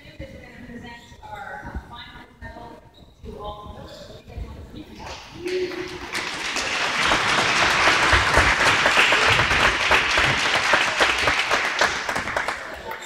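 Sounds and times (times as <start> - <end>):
crowd applauding: 5.0 - 13.0.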